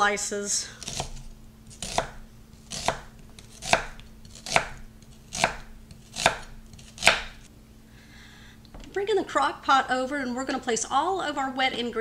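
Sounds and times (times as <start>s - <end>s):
knife slicing onion on wooden board: 0.8s - 7.4s.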